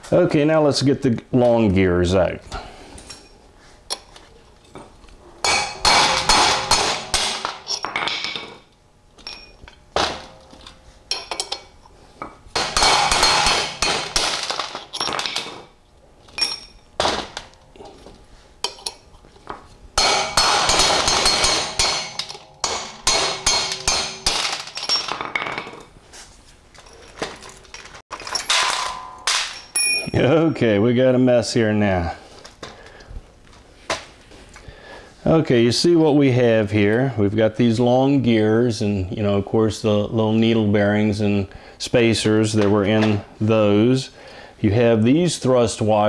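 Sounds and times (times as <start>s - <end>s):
hammer striking steel punch: 5.4s - 8.4s, 12.6s - 15.2s, 20.0s - 24.6s, 28.5s - 30.2s.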